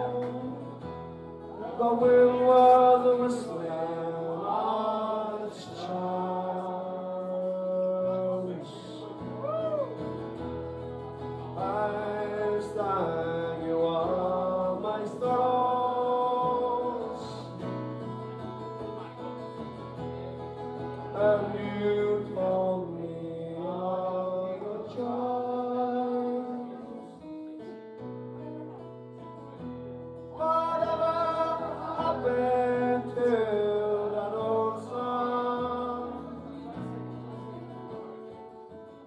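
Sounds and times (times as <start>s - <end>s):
man singing: 0.0s - 9.5s, 11.4s - 18.2s, 20.8s - 27.7s, 30.2s - 37.7s
strummed acoustic guitar: 0.0s - 39.0s.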